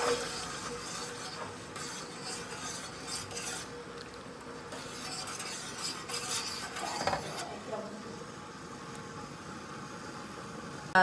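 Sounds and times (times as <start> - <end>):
metal spoon scraping and clinking pot: 0.0 - 3.7, 4.8 - 7.5.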